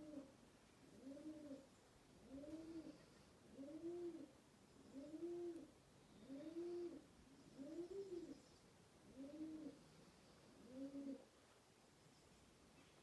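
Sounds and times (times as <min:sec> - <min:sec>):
pigeon cooing: 0:00.0 - 0:04.3, 0:04.9 - 0:08.4, 0:09.0 - 0:09.8, 0:10.5 - 0:11.3.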